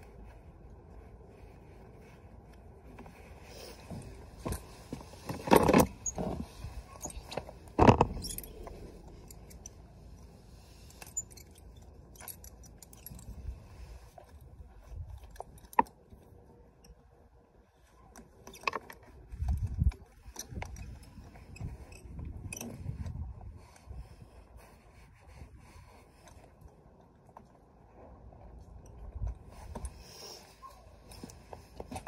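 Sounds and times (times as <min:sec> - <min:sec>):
metal horse tack jingling: 0:03.9 - 0:10.2, 0:10.9 - 0:13.7.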